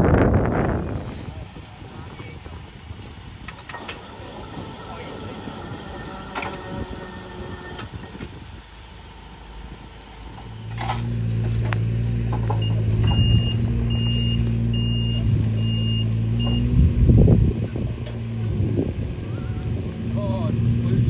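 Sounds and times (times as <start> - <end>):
engine idling: 0.0 - 21.0
high electronic beeper: 12.6 - 16.7.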